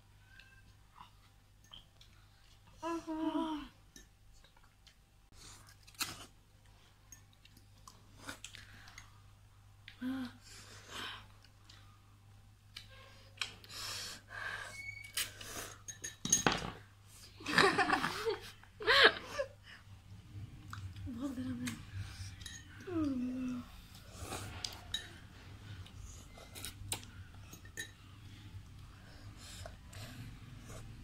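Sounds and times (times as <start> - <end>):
forks clinking in glass bowls: 15.9 - 16.6, 22.4 - 22.8.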